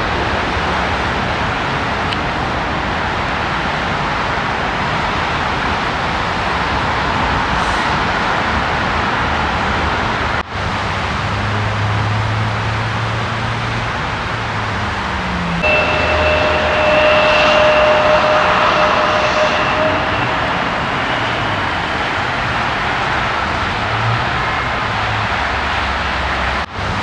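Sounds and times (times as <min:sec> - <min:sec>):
jet engines roaring overhead: 0:00.0 - 0:27.0
high steady whine: 0:15.3 - 0:25.4.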